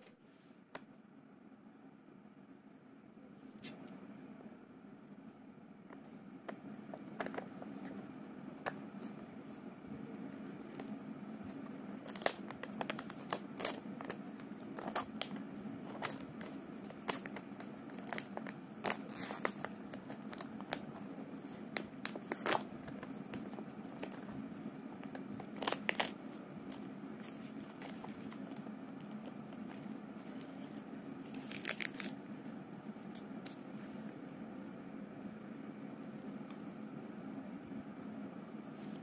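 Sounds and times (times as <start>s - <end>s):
foil wrapper crinkling and tearing: 11.9s - 21.0s, 21.7s - 32.2s.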